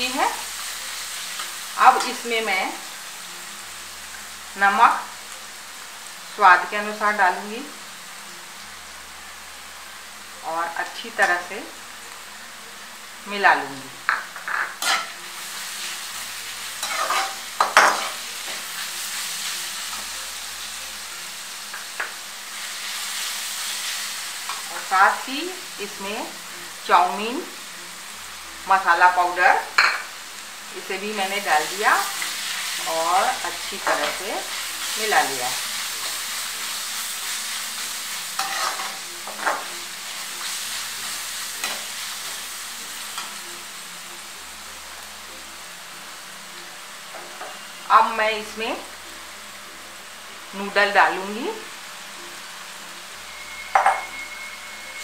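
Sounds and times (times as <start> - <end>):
vegetables sizzling in oil: 0.0 - 55.0
metal spoon scraping pan: 14.5 - 15.2, 16.8 - 18.2, 38.4 - 39.6.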